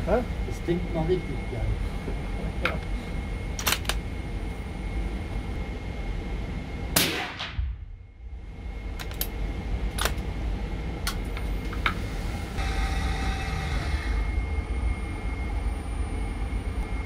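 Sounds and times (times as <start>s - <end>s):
suppressed rifle shot: 7.0s - 7.7s.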